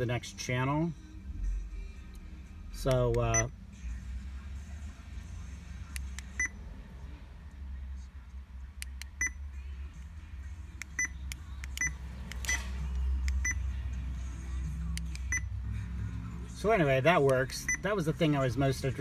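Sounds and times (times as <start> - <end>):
short electronic beeps: 11.0 - 11.2, 13.4 - 13.7, 15.3 - 15.5, 17.6 - 17.9.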